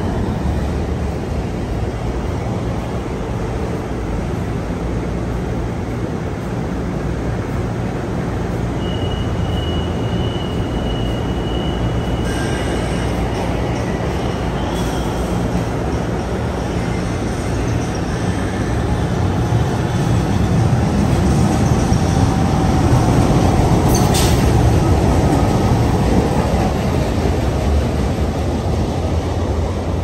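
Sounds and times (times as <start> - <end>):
light rail train rumble: 0.0 - 30.0.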